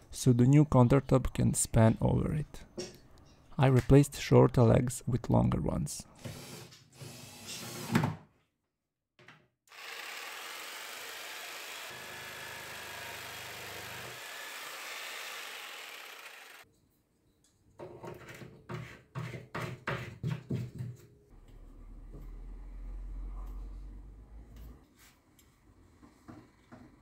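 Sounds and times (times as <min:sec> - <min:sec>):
jigsaw cutting particleboard: 0:09.7 - 0:16.6.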